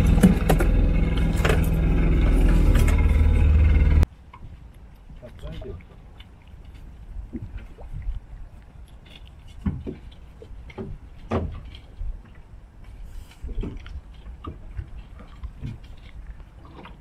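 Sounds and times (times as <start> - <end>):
low rumble of wind and water: 0.0 - 17.0
knocks and thuds on boat deck: 10.7 - 11.7.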